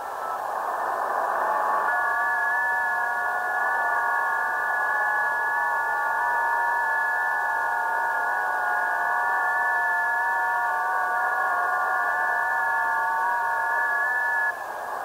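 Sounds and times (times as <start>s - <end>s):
radio hiss: 0.0s - 15.0s
steady data tones: 0.0s - 15.0s.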